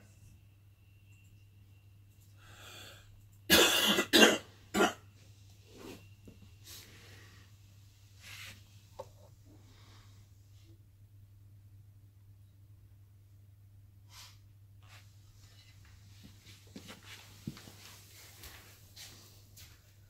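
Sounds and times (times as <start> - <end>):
person coughing: 3.5 - 5.0.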